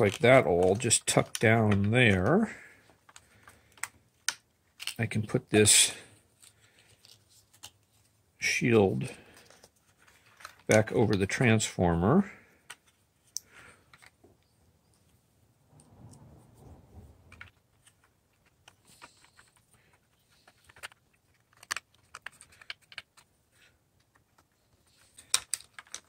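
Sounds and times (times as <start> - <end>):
clicks and taps of small parts: 0.0 - 5.0, 9.4 - 11.4, 12.6 - 14.4, 17.3 - 26.0.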